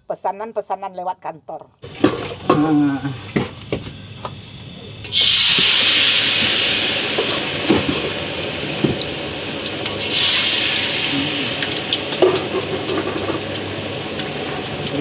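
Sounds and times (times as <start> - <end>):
dough sizzling in hot oil: 1.8 - 15.0.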